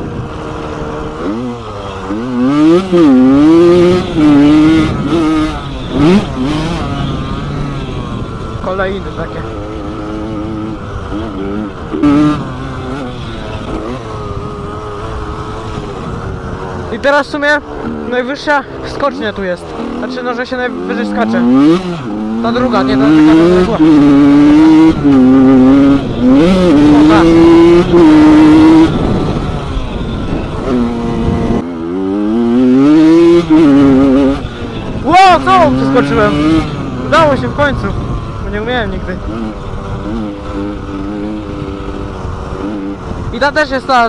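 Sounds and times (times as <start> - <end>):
motocross engine revving: 0.0 - 44.0.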